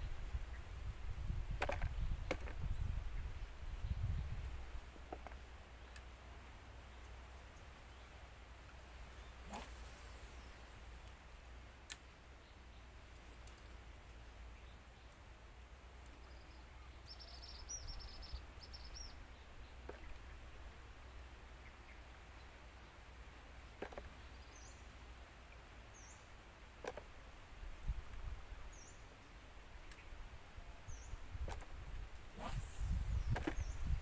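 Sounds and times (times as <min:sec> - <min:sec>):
faint clicks: 0:11.8 - 0:12.1, 0:13.1 - 0:14.2
bird chirps: 0:16.2 - 0:20.2.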